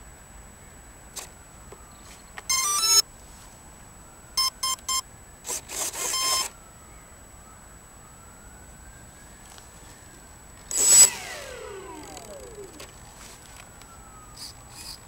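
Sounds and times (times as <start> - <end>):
speed controller power-up tones: 10.7 - 12.9.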